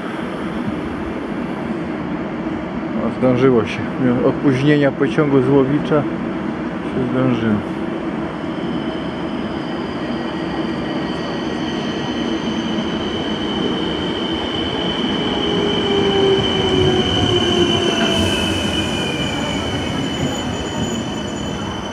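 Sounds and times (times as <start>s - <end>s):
train brakes squealing: 8.3s - 21.9s.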